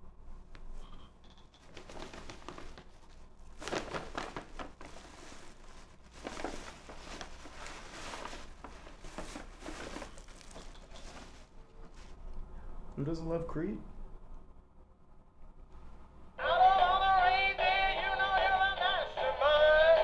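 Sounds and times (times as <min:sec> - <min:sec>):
paper bag rustling and crinkling: 0:01.5 - 0:12.2.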